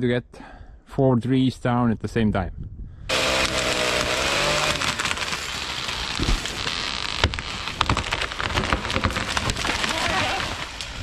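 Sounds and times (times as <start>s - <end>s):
chainsaw running: 3.1s - 11.0s
trees crashing through branches: 3.1s - 11.0s.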